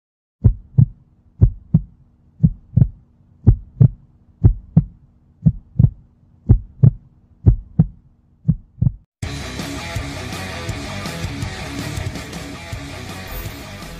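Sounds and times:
heartbeat thumps: 0:00.4 - 0:09.1.

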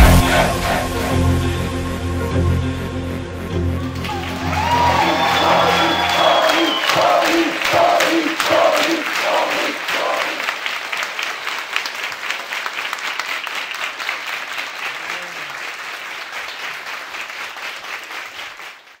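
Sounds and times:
crowd applauding: 0:03.8 - 0:19.0.

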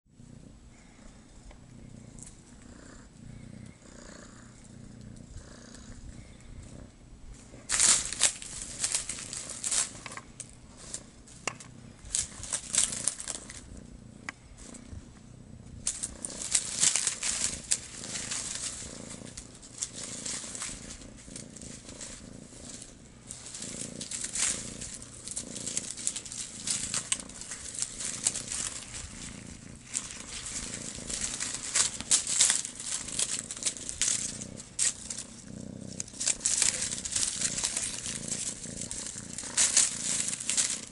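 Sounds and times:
kitten purring: 0:00.1 - 0:40.9
crinkly rustling of toy: 0:07.5 - 0:13.8, 0:15.8 - 0:40.9.

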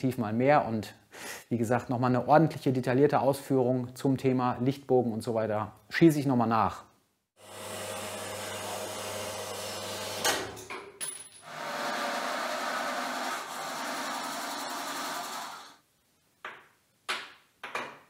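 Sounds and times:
band saw cutting steel: 0:07.4 - 0:10.4, 0:11.5 - 0:15.8.

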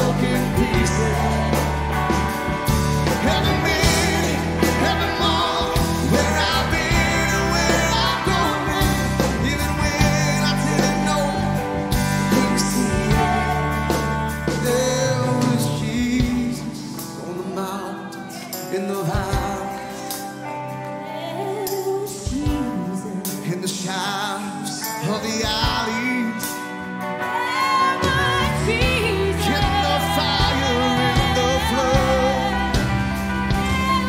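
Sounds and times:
deep bass: 0:00.0 - 0:17.0, 0:28.0 - 0:34.0
person singing: 0:00.0 - 0:34.0
worship song with band: 0:00.0 - 0:34.0.

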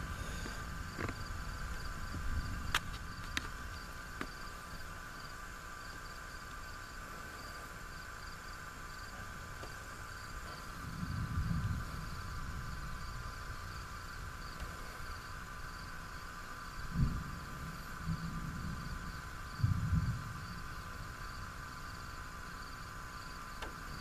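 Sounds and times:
insects chirping: 0:00.0 - 0:24.0
low rumble: 0:10.4 - 0:15.3.

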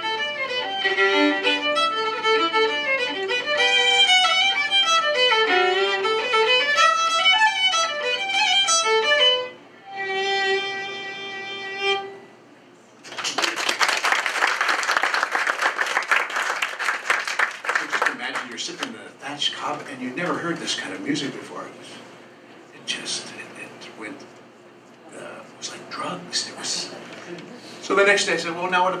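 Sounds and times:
solo fiddle folk tune: 0:00.0 - 0:12.2
audience applause: 0:13.0 - 0:18.9.

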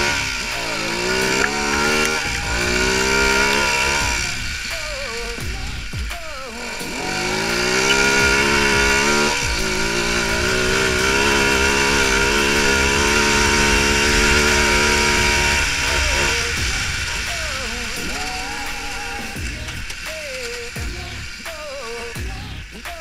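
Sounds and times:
quad bike engine revving: 0:00.0 - 0:23.0.

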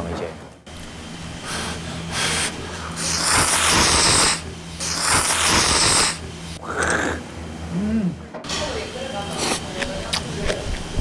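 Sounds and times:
person slurping noodles: 0:02.2 - 0:07.2.

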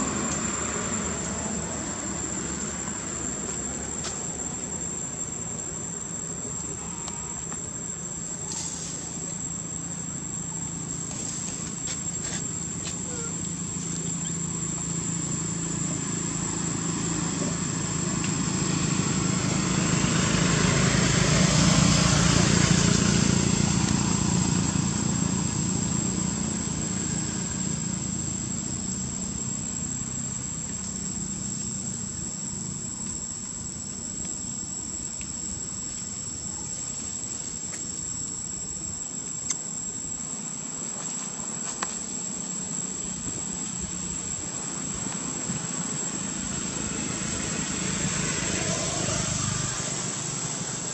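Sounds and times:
high-pitched insect drone: 0:00.0 - 0:50.9
passing vehicle engine: 0:14.4 - 0:30.5, 0:43.9 - 0:50.9.

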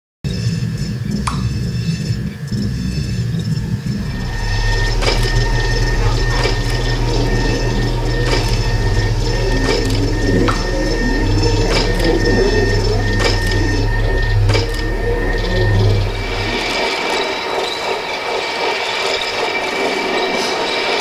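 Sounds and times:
low mechanical hum: 0:00.3 - 0:18.4
sharp clicks: 0:01.2 - 0:01.5.

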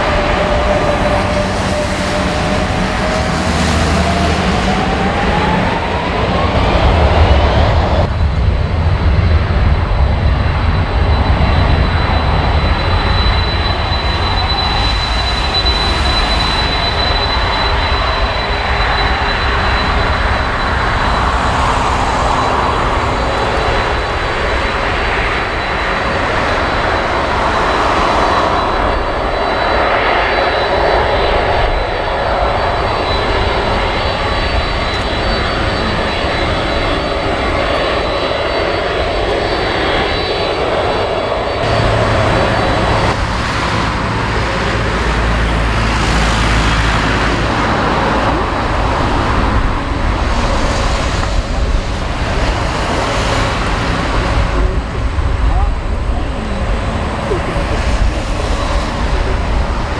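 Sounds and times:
heavy low rumble: 0:00.0 - 0:59.9
jet engines whining: 0:00.0 - 0:59.9.

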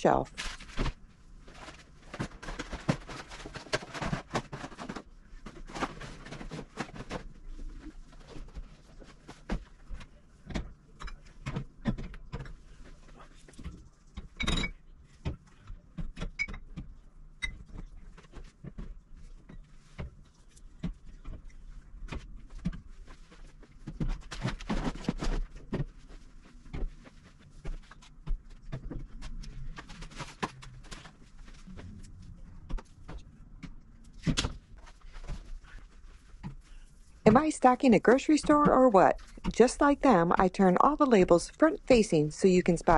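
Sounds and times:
bottles and jars clinking on shelving: 0:14.3 - 0:14.8.

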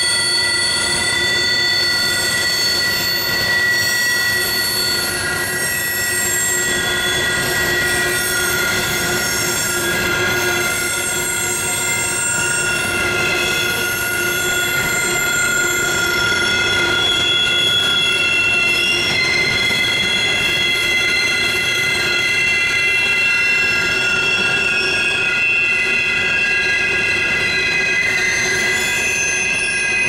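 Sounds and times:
train rolling rumble: 0:00.0 - 0:30.0
wheels squealing on rails: 0:00.0 - 0:30.0.

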